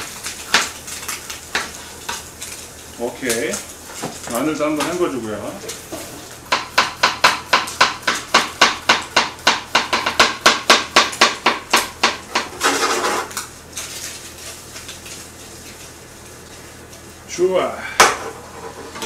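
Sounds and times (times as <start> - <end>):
knife chopping on cutting board: 6.5 - 12.6.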